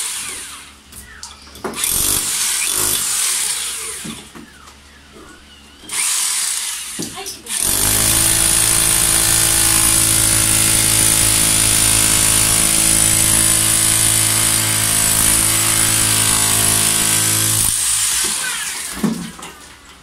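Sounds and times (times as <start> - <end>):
demolition hammer chiseling concrete: 1.8 - 3.6, 7.0 - 19.0.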